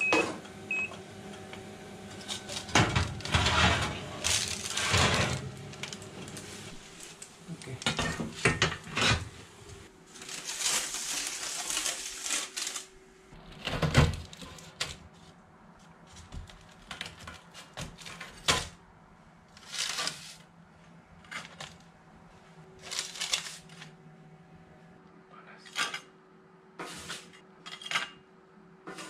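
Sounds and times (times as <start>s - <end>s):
baking paper rustling: 2.1s - 9.3s, 9.9s - 13.3s, 19.5s - 24.0s
crispbread cracking and snapping: 10.1s - 13.0s, 19.5s - 20.4s, 22.8s - 24.0s.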